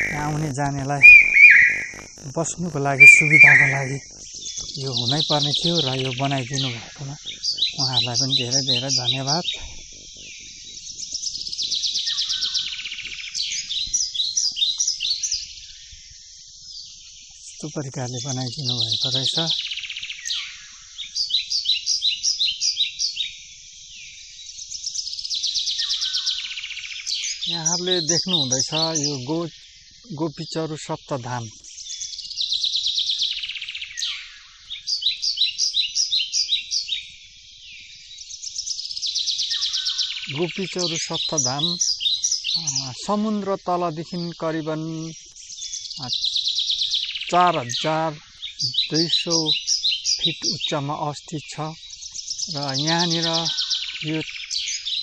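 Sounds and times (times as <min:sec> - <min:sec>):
high insect buzz: 0:00.0 - 0:51.0
birds trilling and chirping: 0:00.0 - 0:55.0.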